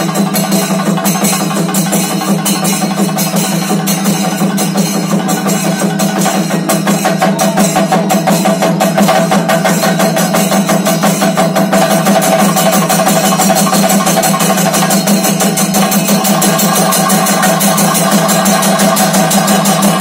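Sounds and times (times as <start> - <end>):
fast drumming: 0.0 - 20.0
hand cymbals: 0.0 - 20.0.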